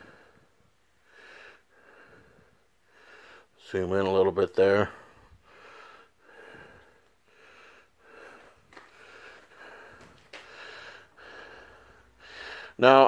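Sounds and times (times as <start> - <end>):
quick soft breathing: 5.0 - 12.8.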